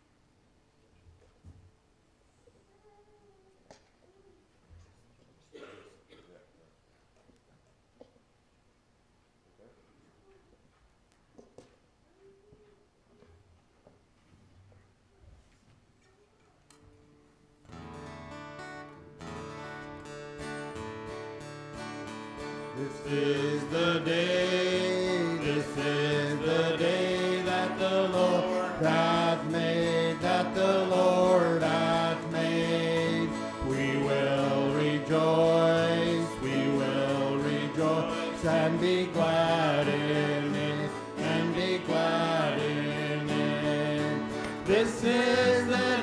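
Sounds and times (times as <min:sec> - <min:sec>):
acoustic guitars strumming: 0:17.6 - 0:46.0
voices singing: 0:22.6 - 0:46.0.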